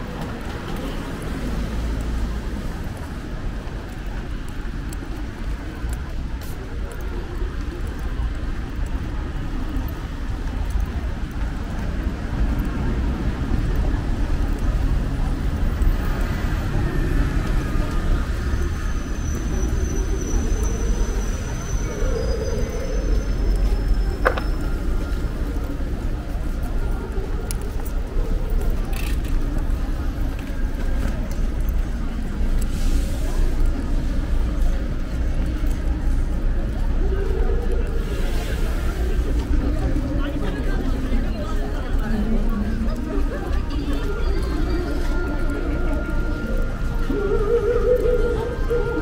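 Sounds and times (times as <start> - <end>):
traffic rumble: 0.0 - 49.0
tyres hissing on wet road: 32.1 - 34.8, 37.9 - 40.0
car tyre hiss on wet road: 32.6 - 34.0.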